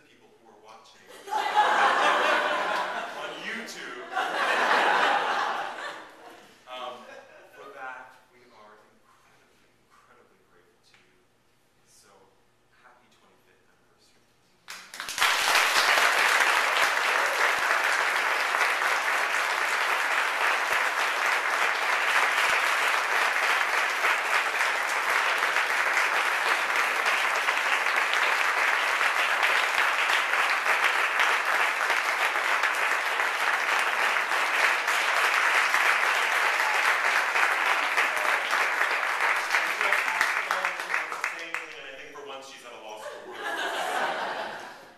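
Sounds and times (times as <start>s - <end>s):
audience applauding: 1.3s - 6.2s, 14.7s - 41.8s.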